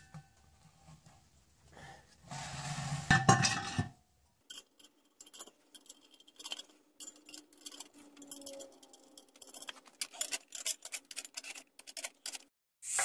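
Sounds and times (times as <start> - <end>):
steel cover scraping clatter: 2.3 - 3.9, 4.5 - 12.5
metallic clinks of nuts: 4.5 - 12.1.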